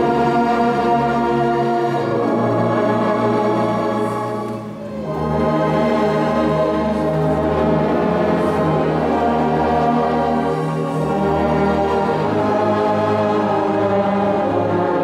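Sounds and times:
brass band playing slow hymn: 0.0 - 15.0.

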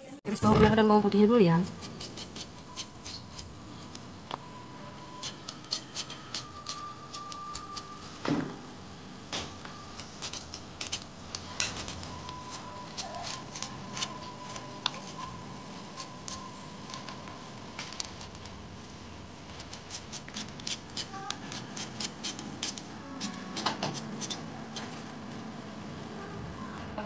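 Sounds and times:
knife cutting shallots and garlic: 1.6 - 3.5, 5.1 - 7.9, 10.2 - 11.0, 12.5 - 14.1, 19.7 - 24.4.

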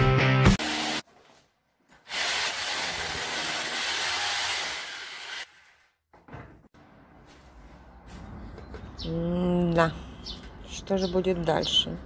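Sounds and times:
power drill boring into wall: 2.1 - 5.7.

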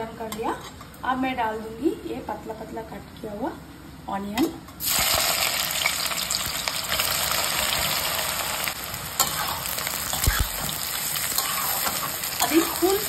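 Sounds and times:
onions sizzling in hot oil: 4.8 - 13.0.

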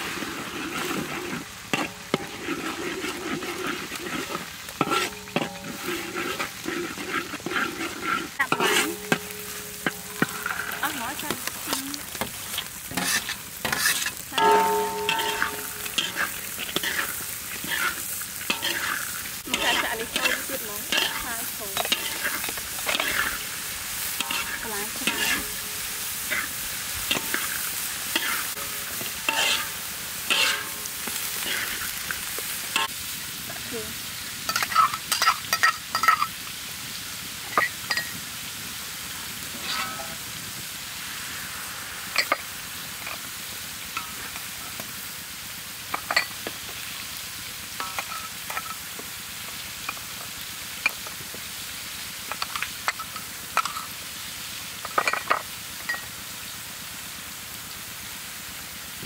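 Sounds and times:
metal spatula scraping wok: 0.0 - 33.8, 34.5 - 36.4, 39.4 - 40.3, 42.2 - 43.3, 47.8 - 48.8
vegetables sizzling: 0.0 - 59.0.

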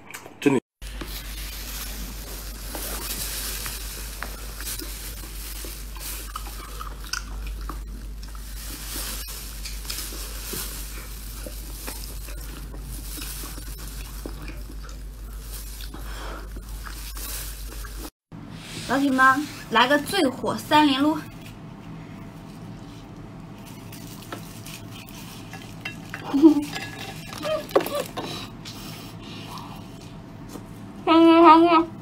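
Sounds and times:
steady hiss and low hum: 0.5 - 32.0
wet chewing clicks and smacks: 4.2 - 8.4, 11.5 - 17.0.

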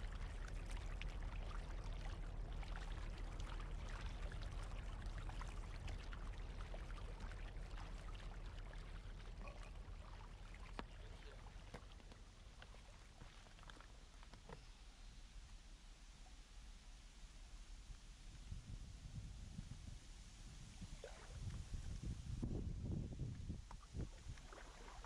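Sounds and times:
low rumble: 0.0 - 11.5
paddle splashing water: 0.0 - 14.7, 23.7 - 25.0.

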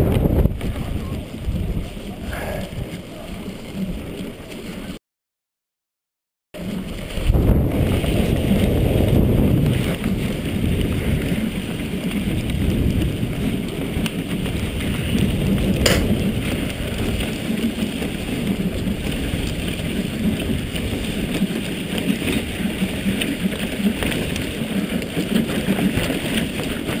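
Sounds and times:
sled runners scraping on snow: 0.0 - 5.0, 6.6 - 27.0
sharp click: 15.9 - 16.2.

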